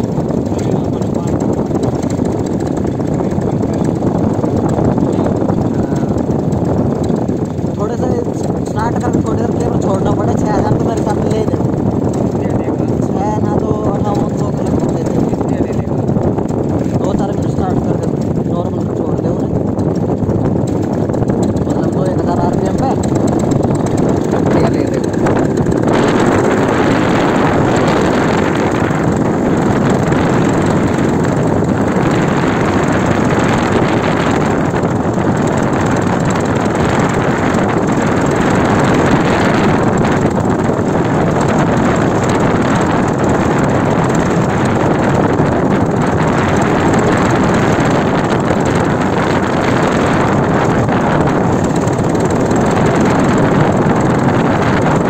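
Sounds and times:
paramotor engine and propeller drone: 0:00.0 - 0:55.0
wind rushing over microphone: 0:00.0 - 0:55.0.

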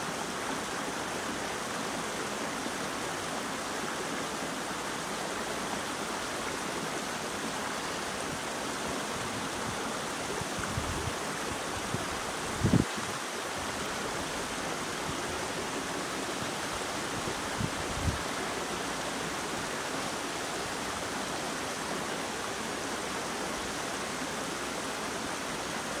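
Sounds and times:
stream running over rocks: 0:00.0 - 0:26.0.

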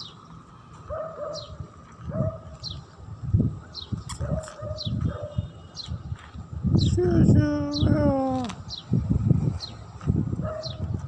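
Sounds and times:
small birds chirping: 0:00.0 - 0:09.0, 0:09.6 - 0:11.0.

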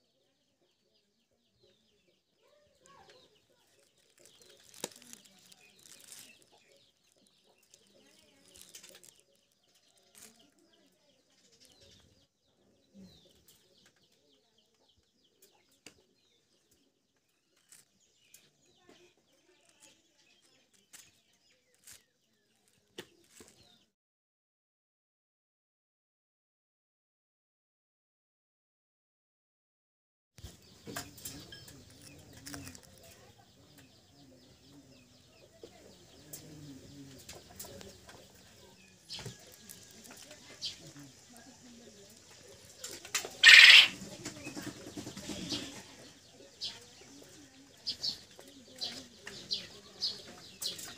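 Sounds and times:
quail chicks peeping: 0:00.0 - 0:23.8, 0:30.4 - 0:50.9
soft cooing bird calls: 0:35.7 - 0:46.0.

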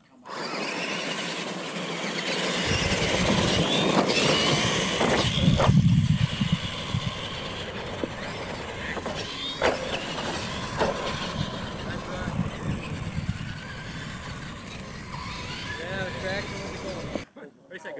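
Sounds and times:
toy trucks racing on dirt: 0:00.0 - 0:17.3.

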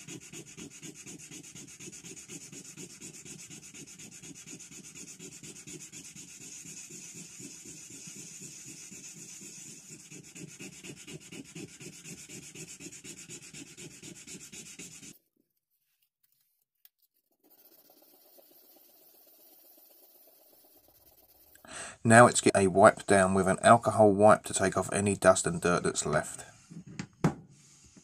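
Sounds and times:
sandpaper rubbing on metal: 0:00.0 - 0:15.2, 0:17.4 - 0:21.6.

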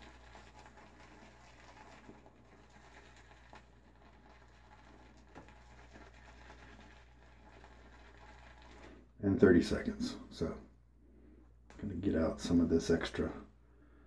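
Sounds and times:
shaving brush swirling on soap: 0:00.0 - 0:10.1.

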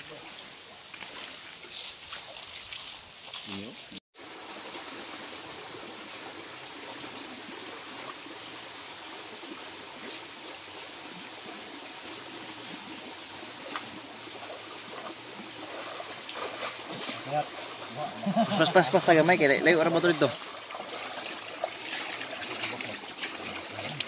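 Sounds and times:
people wading splashing: 0:00.0 - 0:03.8, 0:10.0 - 0:24.0
stream water running: 0:00.0 - 0:24.0.

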